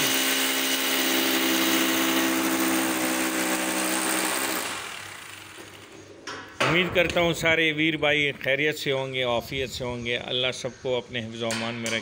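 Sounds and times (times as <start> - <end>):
angle grinder grinding steel: 0.0 - 6.1.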